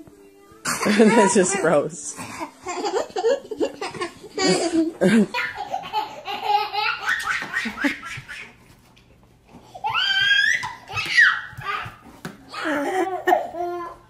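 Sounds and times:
child laughing: 0.7 - 1.8, 2.4 - 8.6, 9.8 - 14.0
people laughing: 2.4 - 8.2.

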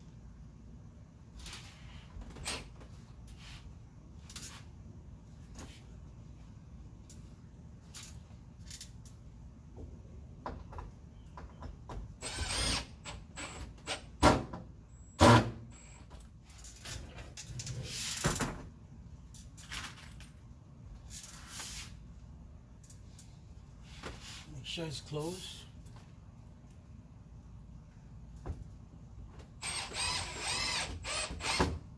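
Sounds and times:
cordless drill bursts: 12.2 - 13.6, 29.6 - 31.8.

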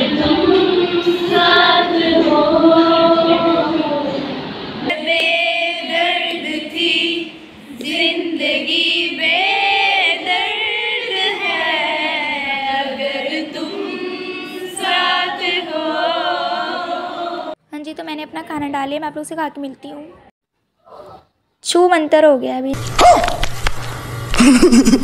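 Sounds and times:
women singing unaccompanied: 0.0 - 17.6.

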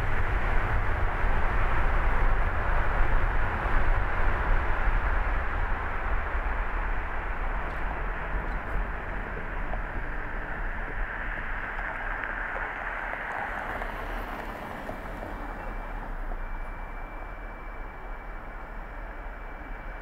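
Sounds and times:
car tyre and road noise: 0.0 - 20.0
faint thin high tone: 15.5 - 20.0.

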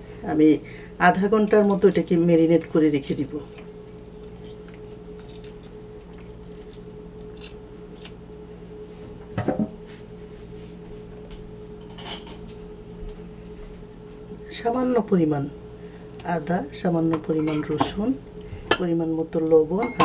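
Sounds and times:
low electrical hum: 0.0 - 20.0
utensils clinking against bowls: 17.3 - 18.0, 19.8 - 20.0.

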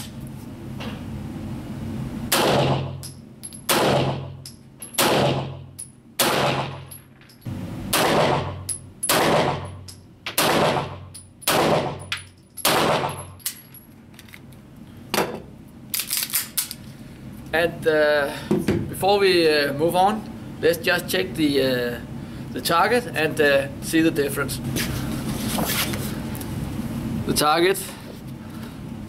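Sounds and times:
pistol shots echoing indoors: 2.3 - 3.0, 3.7 - 4.4, 5.0 - 5.6, 6.2 - 6.9, 7.9 - 13.3.

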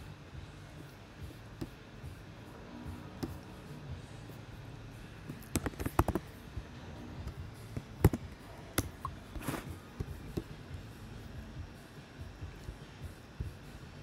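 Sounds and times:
low steady hum: 0.0 - 14.0
computer mouse clicks: 5.3 - 6.2.

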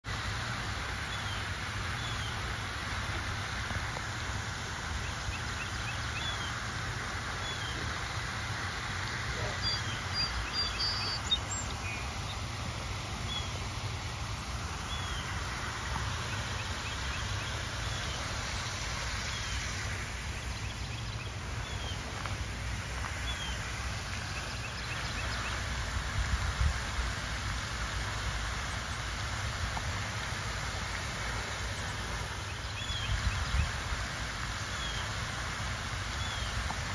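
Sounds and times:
fountain water falling: 0.0 - 36.9
small birds chirping: 9.3 - 12.6.

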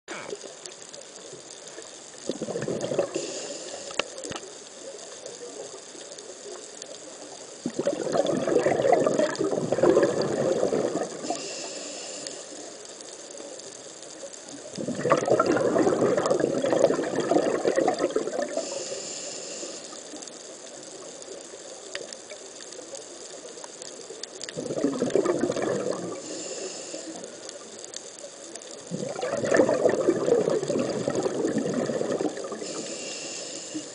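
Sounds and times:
exhaled bubbles gurgling underwater: 0.2 - 33.9
regulator inhale hiss: 2.9 - 6.6, 11.1 - 13.6, 18.4 - 20.5, 26.1 - 28.2, 32.3 - 33.9.

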